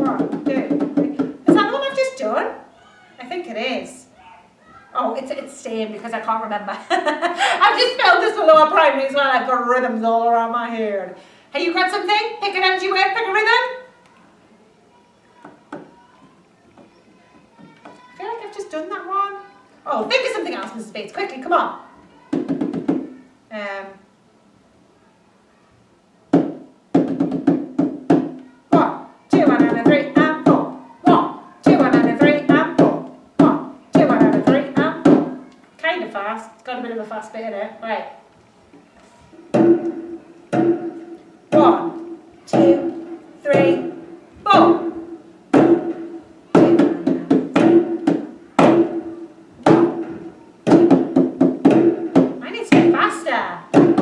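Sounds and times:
hand drum struck with palms: 0:00.0 - 0:01.6, 0:26.4 - 0:35.4, 0:39.4 - 0:54.0.

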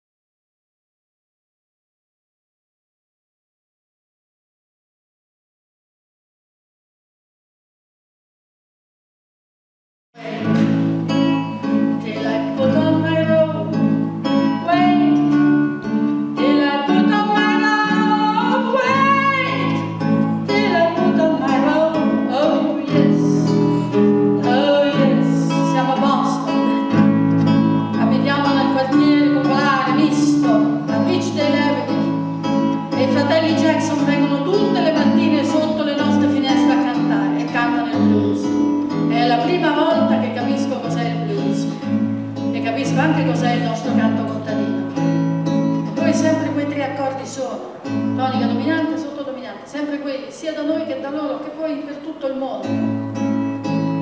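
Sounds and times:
woman singing folk song: 0:10.2 - 0:44.8, 0:45.9 - 0:53.0
classical guitar: 0:10.2 - 0:54.0.

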